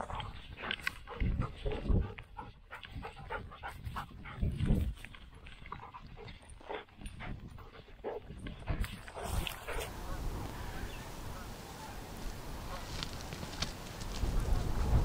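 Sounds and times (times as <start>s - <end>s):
puppy panting: 0.0s - 10.0s
feathers and stubble rustling: 8.4s - 15.0s.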